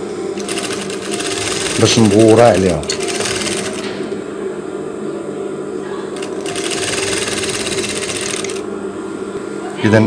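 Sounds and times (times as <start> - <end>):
sewing machine stitching: 0.4 - 3.9, 6.2 - 8.6.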